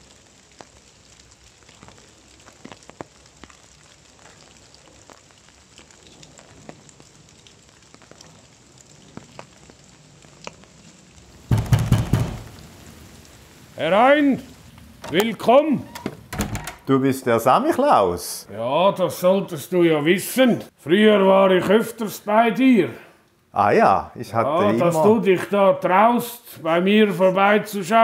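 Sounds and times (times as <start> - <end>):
faint crackling hiss: 0.0 - 28.0
knocking on wooden door: 11.5 - 12.5.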